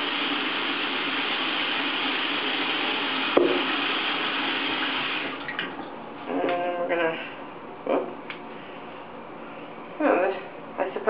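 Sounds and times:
faucet running into sink: 0.0s - 5.7s
bottle knocking in sink: 3.4s - 3.7s.

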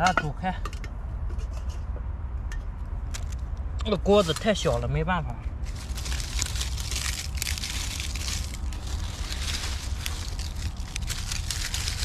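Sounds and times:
steady low rumble: 0.7s - 12.0s
dry leaves crackling: 3.9s - 4.9s, 5.5s - 12.0s.

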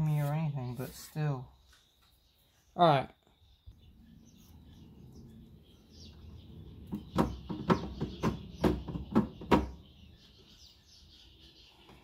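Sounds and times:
knocks on plastic panel: 6.9s - 9.8s.

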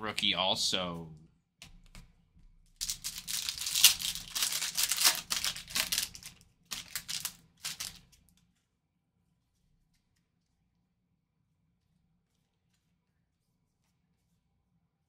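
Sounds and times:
foil pack crinkling: 2.8s - 8.2s.

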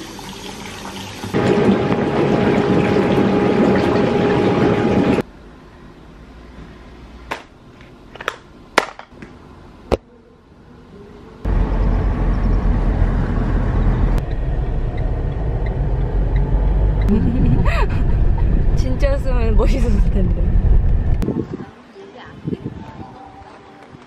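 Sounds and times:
car interior road rumble: 11.5s - 21.2s.

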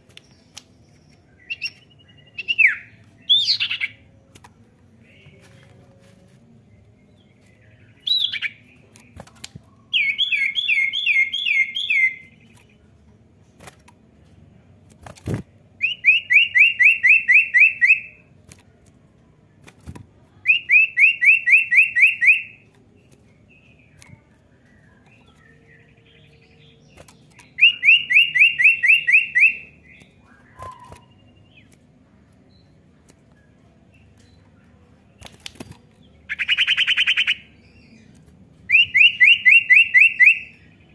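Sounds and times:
bird trilling: 27.6s - 31.4s.

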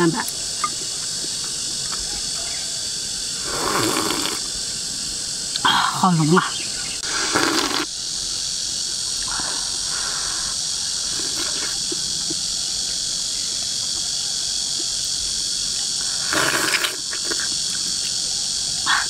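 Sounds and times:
insects chorus: 0.0s - 19.0s
slurping soup: 3.4s - 4.5s, 7.0s - 7.9s, 9.2s - 12.0s, 16.1s - 17.5s
soft eating sounds: 8.9s - 13.0s, 13.7s - 19.0s.

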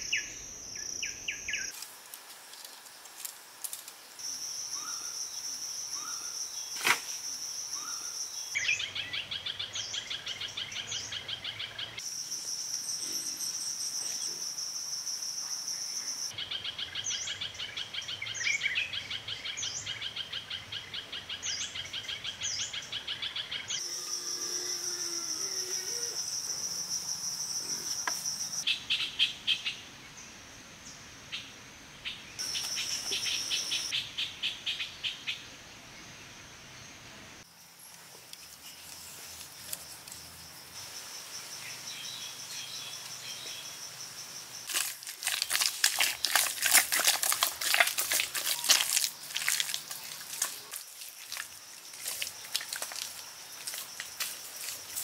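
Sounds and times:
high-pitched insect buzz: 23.8s - 28.6s
pulsing cricket trill: 23.8s - 28.6s.

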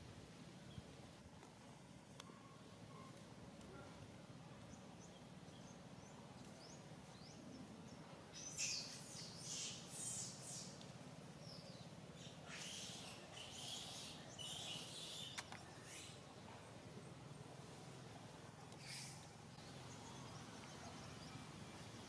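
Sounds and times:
bird chirping: 4.7s - 10.8s, 11.4s - 16.2s
scratchy high-pitched bird calls: 18.8s - 19.2s.

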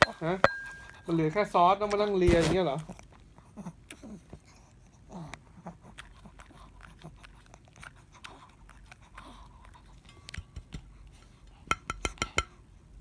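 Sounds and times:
dog licking a plate: 5.3s - 11.4s
clicks against a plate: 11.7s - 12.6s.

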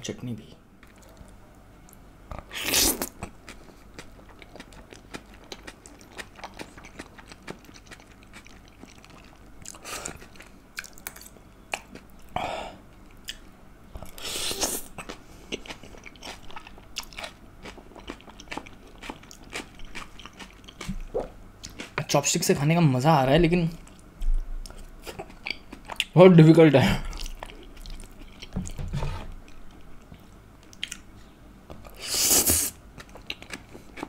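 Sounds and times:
wet chewing and smacking: 3.0s - 12.4s, 14.9s - 22.1s, 27.0s - 31.1s, 32.9s - 34.0s.

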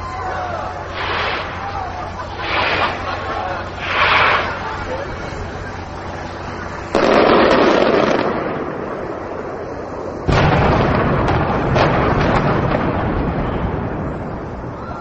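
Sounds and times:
firework cracks: 0.8s - 5.2s, 6.0s - 14.9s
heavy explosion booms: 6.9s - 15.0s.

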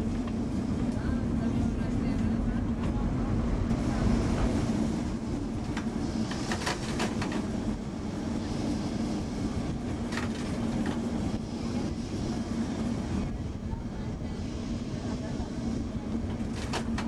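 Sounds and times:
tram motor hum: 0.0s - 17.0s
wheels clicking on rails: 5.6s - 7.8s, 8.4s - 12.4s, 16.1s - 17.0s.

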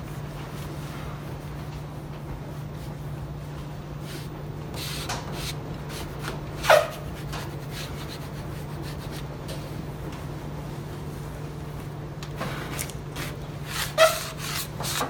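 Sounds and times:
steady low hum: 0.0s - 15.0s
squeegee scraping over decal: 2.8s - 9.3s, 13.2s - 15.0s.

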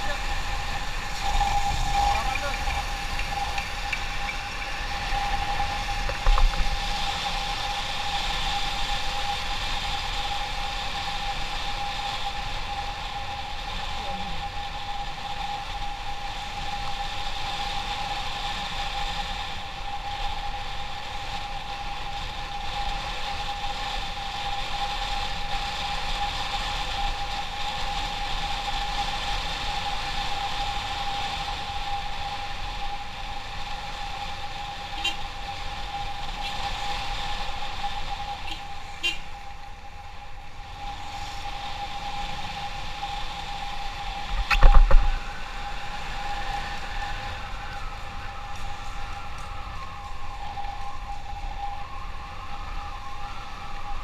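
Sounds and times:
motorcycle running: 0.0s - 19.8s
road noise: 0.0s - 54.0s
short knock: 44.5s - 45.2s.

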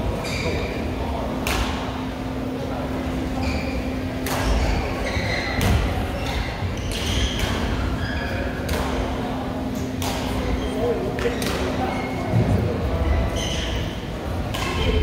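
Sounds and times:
sneaker squeaks: 0.1s - 1.7s, 3.3s - 15.0s
racket hitting shuttlecock: 1.4s - 1.8s, 4.2s - 4.7s, 5.6s - 7.8s, 8.6s - 9.1s, 10.0s - 10.4s, 14.5s - 15.0s.

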